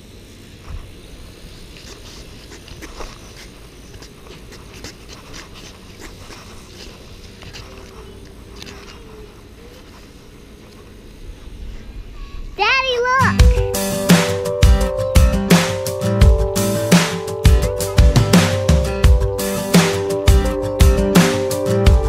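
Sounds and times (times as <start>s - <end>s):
light clicks and rustles of steps: 1.6s - 11.0s.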